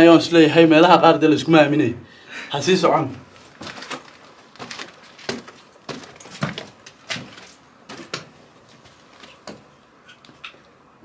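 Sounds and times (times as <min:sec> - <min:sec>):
footsteps on stone and rubble: 0:03.3 - 0:09.7.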